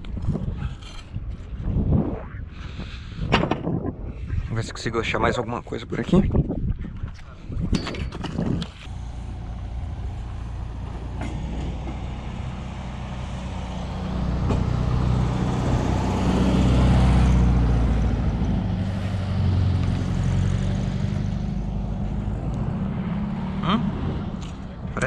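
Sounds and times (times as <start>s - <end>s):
large engine droning: 8.8s - 25.0s.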